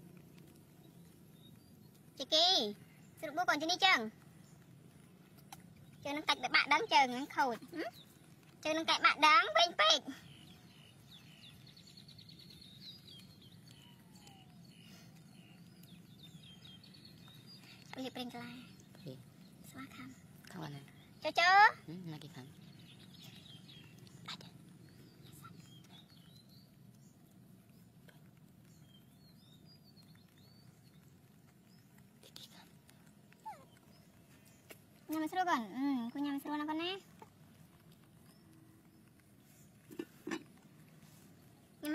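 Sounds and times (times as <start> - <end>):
low steady hum: 0.0 - 41.9
quiet background noise: 0.0 - 41.9
faint high bird chirps: 0.6 - 32.7.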